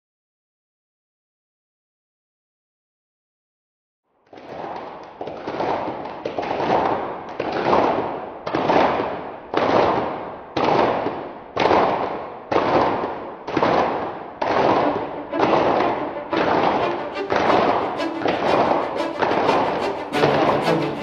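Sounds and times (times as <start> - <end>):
rhythmic crackling bursts: 14.6 - 21.0.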